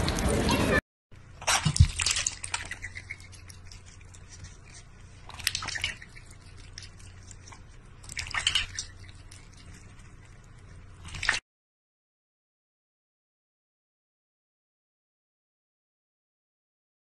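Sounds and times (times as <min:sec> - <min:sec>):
faint low hum: 0:00.0 - 0:11.4
water splashing in a steel bowl: 0:01.4 - 0:03.8, 0:05.3 - 0:07.1, 0:08.0 - 0:09.6, 0:11.0 - 0:11.4.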